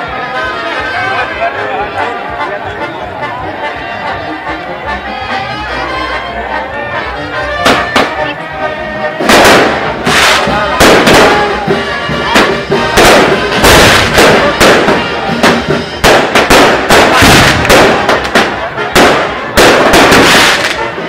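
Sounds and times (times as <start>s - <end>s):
band music: 0.0s - 21.0s
fireworks bangs: 7.6s - 8.3s, 9.2s - 21.0s.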